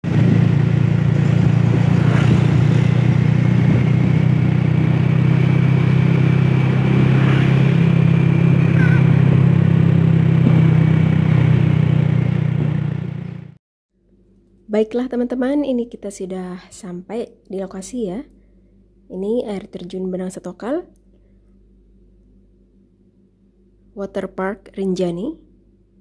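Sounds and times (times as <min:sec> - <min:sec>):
motorcycle engine drone: 0:00.0 - 0:13.6
road and wind noise: 0:00.0 - 0:13.6.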